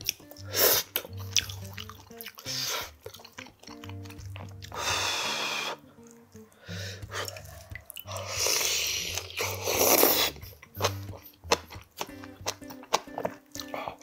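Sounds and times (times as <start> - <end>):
background music: 0.0 - 14.0
person slurping noodles: 0.4 - 3.4, 4.6 - 6.0, 6.6 - 12.3.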